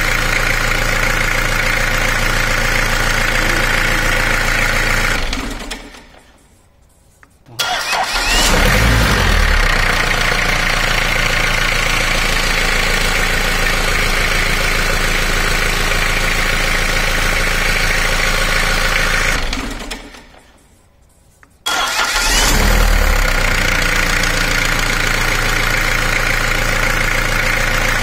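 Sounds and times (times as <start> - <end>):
engine turned over by starter: 7.6 - 20.4, 21.7 - 28.0.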